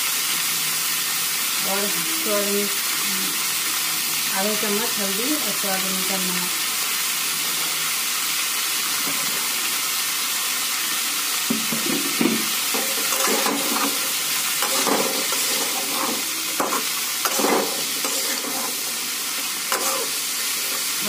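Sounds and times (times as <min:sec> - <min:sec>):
vegetables sizzling in oil: 0:00.0 - 0:21.0
spatula scraping pan: 0:12.2 - 0:21.0.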